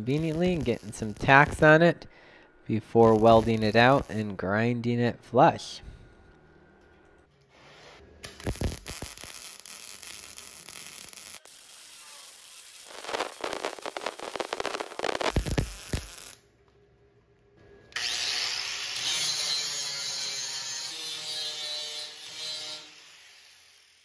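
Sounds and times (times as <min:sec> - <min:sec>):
welding crackle: 0:00.0 - 0:02.0, 0:02.9 - 0:04.3, 0:08.2 - 0:16.4.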